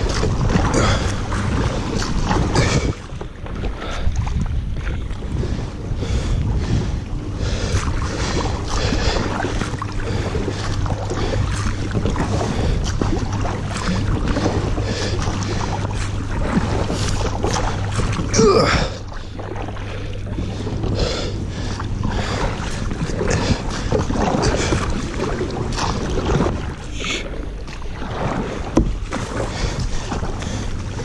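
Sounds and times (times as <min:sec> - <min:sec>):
wind on microphone: 0:00.0 - 0:18.4
paddle splashing in water: 0:00.0 - 0:31.0.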